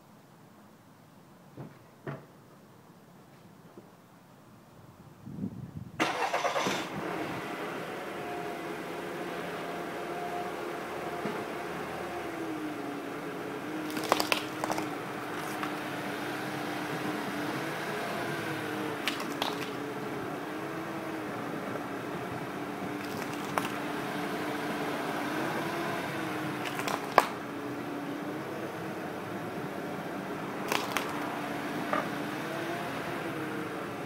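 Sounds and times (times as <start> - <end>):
car engine humming: 6.0 - 34.0
plastic camera cracking and crunching: 13.9 - 15.9, 19.0 - 19.8, 23.0 - 23.9, 26.6 - 27.4, 30.7 - 31.3.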